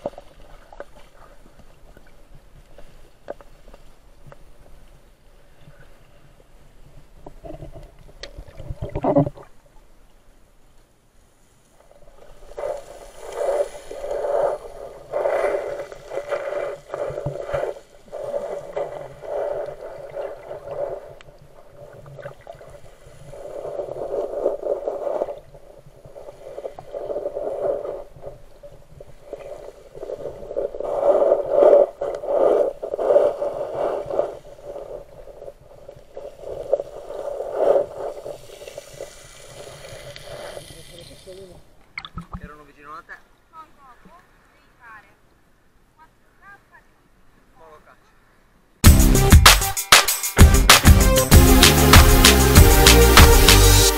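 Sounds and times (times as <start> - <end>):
muffled underwater water movement: 0.0 - 42.8.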